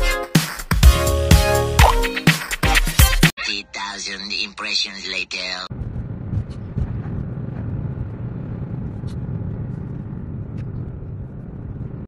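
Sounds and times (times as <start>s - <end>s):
car engine and tyre rumble: 5.7s - 12.0s.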